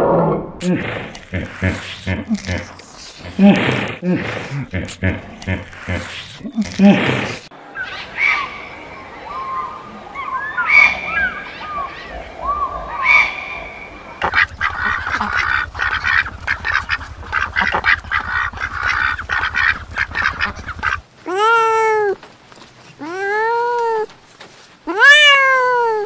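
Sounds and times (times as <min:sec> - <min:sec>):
ducks quacking: 0:14.2 - 0:21.0
scattered chirps: 0:14.2 - 0:21.0
cat meowing: 0:21.3 - 0:22.2, 0:23.0 - 0:24.1, 0:24.9 - 0:26.0.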